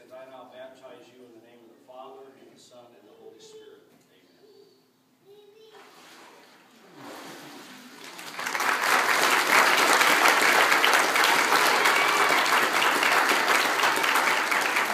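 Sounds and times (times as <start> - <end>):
congregation applauding: 8.0 - 14.9.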